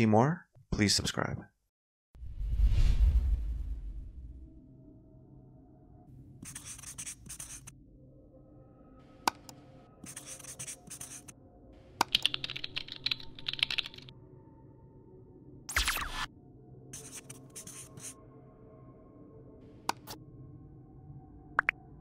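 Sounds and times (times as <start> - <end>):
marker pen scratching: 6.4 - 7.7, 10.0 - 11.3, 17.0 - 18.2
rapid keyboard typing: 10.0 - 11.3, 12.0 - 14.1.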